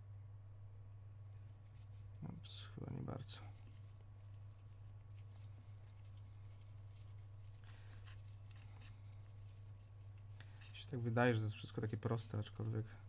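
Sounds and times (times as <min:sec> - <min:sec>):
low electrical hum: 0:00.0 - 0:13.0
metal tool scratching: 0:08.0 - 0:12.8.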